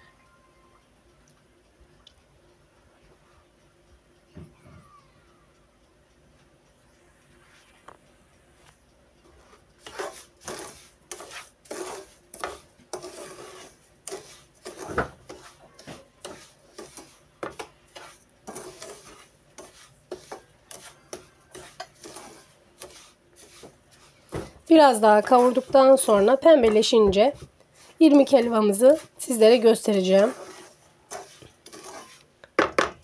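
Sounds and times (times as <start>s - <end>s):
wooden spoon scraping a pan: 9.3s - 32.9s
spoon knocking on pan: 14.7s - 17.7s.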